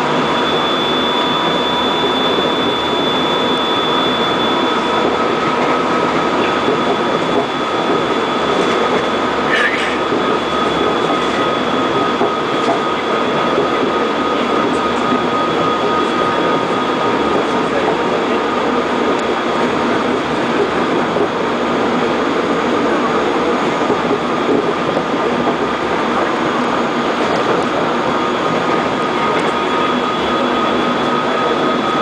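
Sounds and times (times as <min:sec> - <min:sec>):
thin high whine: 0:00.0 - 0:20.2
train wheels rumbling on track: 0:00.0 - 0:32.0.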